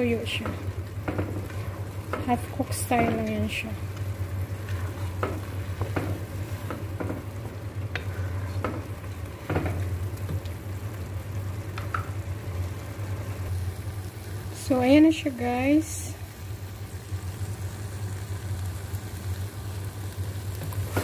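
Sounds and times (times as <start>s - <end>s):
low steady hum: 0.0s - 21.0s
rice sizzling in a pan: 0.0s - 21.0s
wooden spatula scraping a pan: 4.5s - 7.3s, 7.9s - 9.9s.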